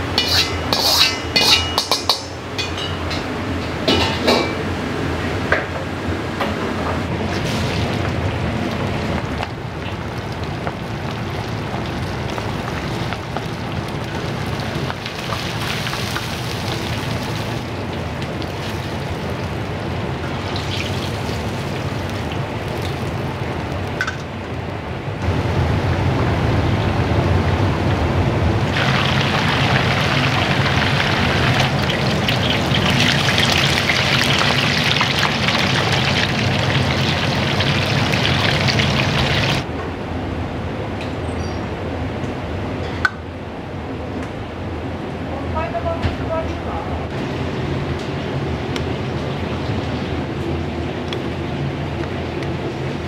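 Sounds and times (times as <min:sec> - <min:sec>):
kitchen sizzling hiss: 0:10.5 - 0:23.8, 0:28.7 - 0:39.7.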